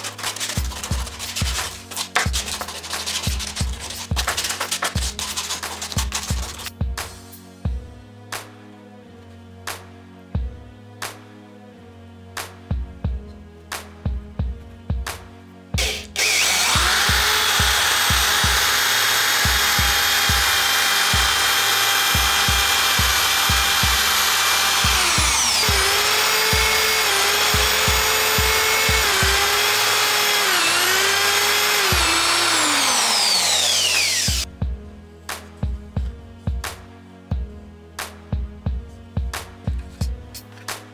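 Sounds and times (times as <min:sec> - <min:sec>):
electric drill boring into wood: 0:15.8 - 0:34.5.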